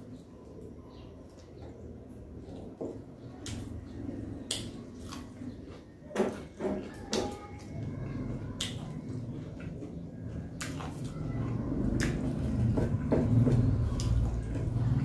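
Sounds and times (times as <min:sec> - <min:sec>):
person chewing food: 0:03.4 - 0:06.0, 0:08.6 - 0:12.7.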